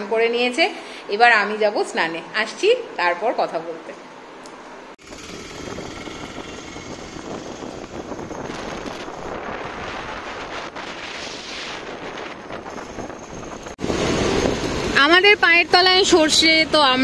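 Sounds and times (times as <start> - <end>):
road traffic noise: 4.0 - 17.0
wind buffeting microphone: 5.0 - 15.0.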